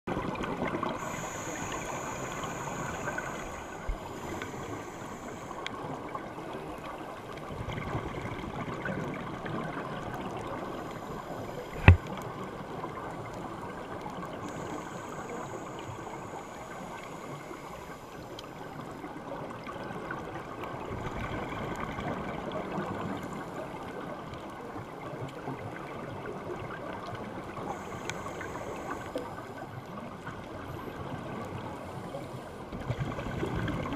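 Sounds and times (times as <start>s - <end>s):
scuba exhaust bubbles gurgling: 0.1s - 33.9s
regulator hissing: 1.0s - 5.6s
sharp click: 11.7s - 12.0s.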